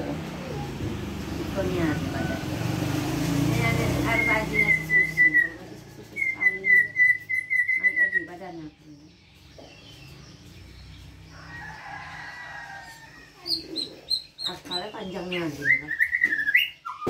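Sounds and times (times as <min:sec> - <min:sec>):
bird whistling repeated notes: 0:04.0 - 0:05.6, 0:06.2 - 0:08.4, 0:15.6 - 0:17.0.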